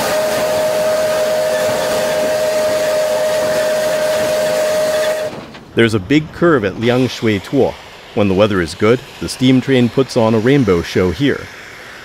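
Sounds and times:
steam locomotive whistle: 0.0 - 5.5
steam hissing: 0.0 - 12.0.

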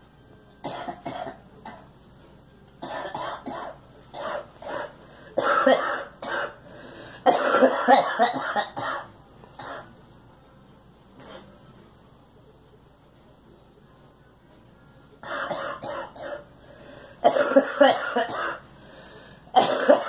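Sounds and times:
girl coughing: 2.8 - 6.6, 7.3 - 9.9, 15.4 - 16.4, 17.2 - 18.6, 19.6 - 20.0.

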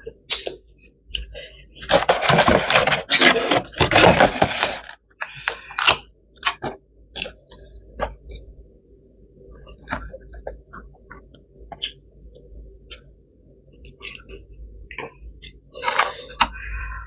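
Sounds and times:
plastic container crinkling: 1.8 - 5.0.

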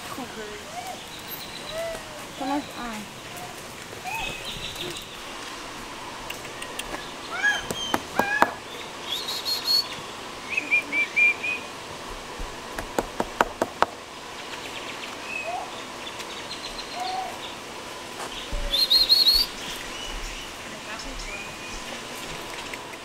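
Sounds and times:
birds chirping: 0.0 - 23.0
sharp clicks: 6.2 - 7.0.

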